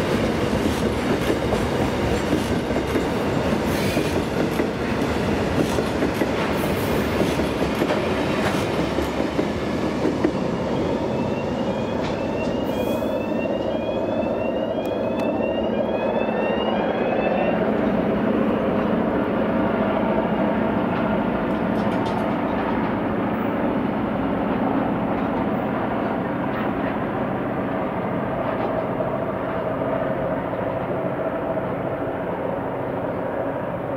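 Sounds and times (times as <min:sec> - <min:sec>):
train wheels clacking over rail joints: 0:00.1 - 0:10.4, 0:21.0 - 0:23.0
short rising wheel squeals: 0:11.1 - 0:17.6.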